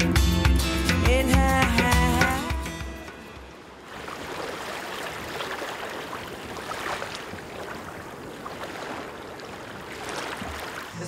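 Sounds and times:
small waves lapping on sand: 0:03.1 - 0:11.0.

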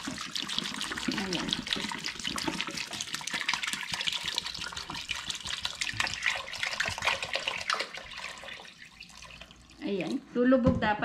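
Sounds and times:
water splashing and gurgling: 0:00.0 - 0:09.7
water pouring into a pot: 0:00.0 - 0:10.3.

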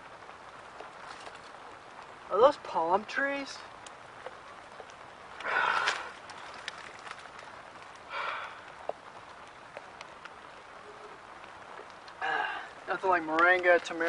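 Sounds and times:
small clicks and rustles: 0:00.3 - 0:02.3, 0:03.6 - 0:14.0
man sighing: 0:12.2 - 0:12.8.

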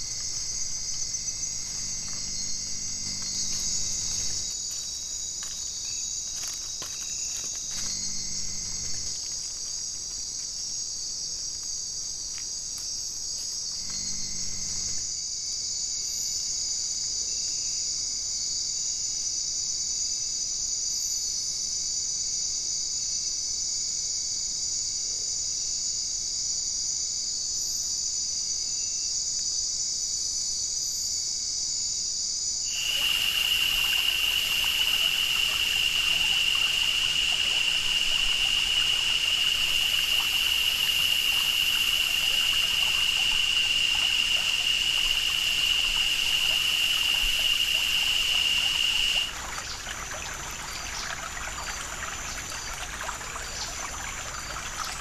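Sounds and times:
stream water trickling: 0:00.0 - 0:14.8, 0:32.7 - 0:55.0
night insects chorus: 0:00.0 - 0:55.0.

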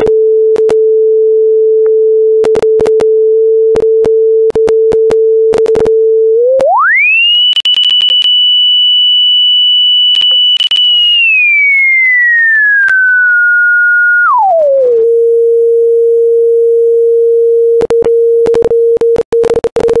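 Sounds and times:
sine tone sweeping in pitch: 0:03.2 - 0:18.4
clicks and crackles: 0:07.4 - 0:08.4, 0:10.1 - 0:11.4, 0:12.4 - 0:13.1.

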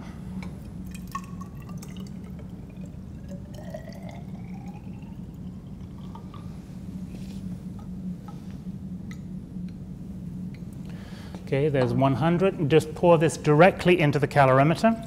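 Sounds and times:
steady low hum: 0:00.0 - 0:15.0
liquid trickling into glass: 0:00.5 - 0:06.6.

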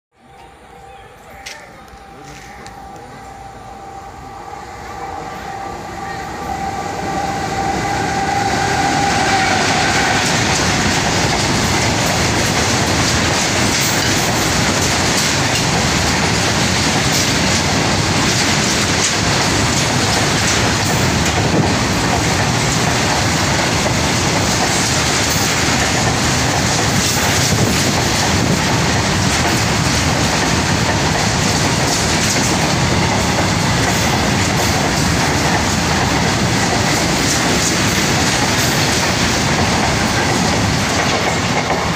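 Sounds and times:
steady high tone: 0:00.1 - 0:10.4
train wheels rushing on rails: 0:00.2 - 0:41.9.

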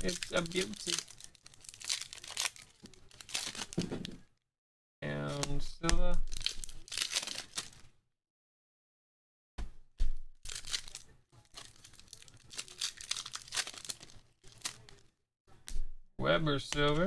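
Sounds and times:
foil wrappers crinkling and tearing: 0:00.0 - 0:04.2, 0:05.3 - 0:07.9, 0:10.4 - 0:15.1.

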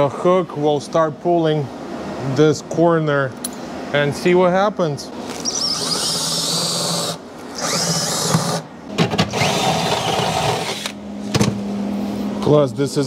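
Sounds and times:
cordless drill boring into metal: 0:05.4 - 0:08.6, 0:09.3 - 0:11.0.

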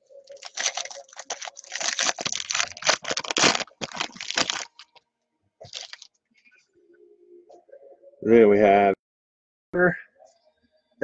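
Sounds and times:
foil wrapper crinkling and tearing: 0:00.3 - 0:05.0, 0:05.7 - 0:06.1.

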